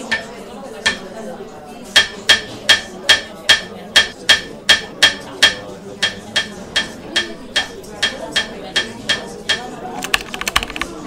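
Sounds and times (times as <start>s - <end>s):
hammer knocking in a nail: 2.0s - 9.7s.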